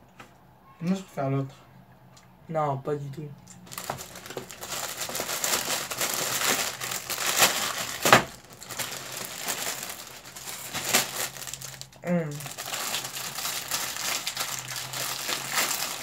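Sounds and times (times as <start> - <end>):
plastic wrapper crinkling: 3.6 - 16.0.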